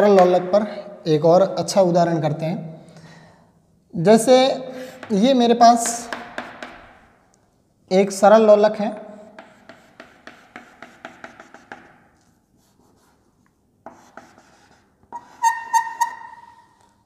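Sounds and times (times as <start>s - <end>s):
chalk tapping on blackboard: 4.9s - 5.2s, 5.8s - 7.0s, 9.0s - 16.4s
chalk squeak: 14.0s - 16.8s.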